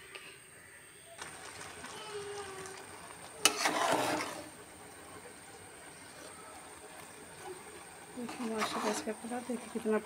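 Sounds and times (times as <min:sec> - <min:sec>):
spoon scraping and stirring pot: 0:02.9 - 0:05.0, 0:05.8 - 0:10.0.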